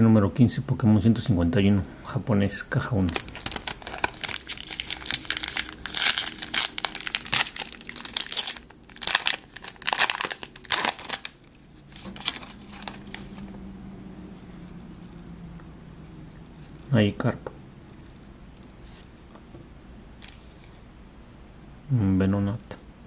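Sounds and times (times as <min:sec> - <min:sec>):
foil wrapper crinkling and tearing: 0:03.1 - 0:13.5
cards rustling: 0:03.1 - 0:13.6.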